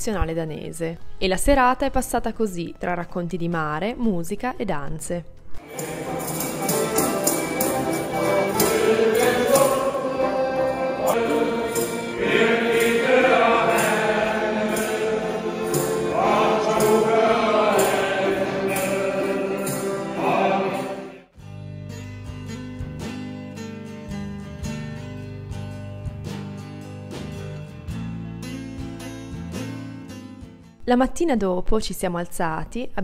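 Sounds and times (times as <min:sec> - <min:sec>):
accordion: 0:05.6 - 0:21.3
male choir singing: 0:05.6 - 0:21.3
strummed guitar music: 0:05.6 - 0:30.8.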